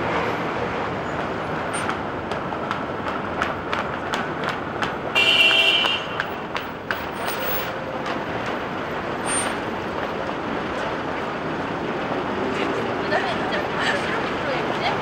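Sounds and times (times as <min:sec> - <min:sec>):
city street traffic: 0:00.0 - 0:15.0
vehicle horn blast: 0:05.1 - 0:06.2.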